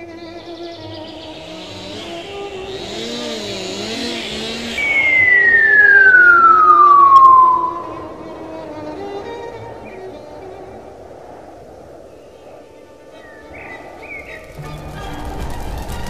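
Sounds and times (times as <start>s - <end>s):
soft string music: 0.0s - 3.9s, 8.0s - 11.2s, 14.6s - 16.0s
chainsaw buzz: 0.6s - 7.1s
falling cartoon whistle: 1.5s - 8.8s.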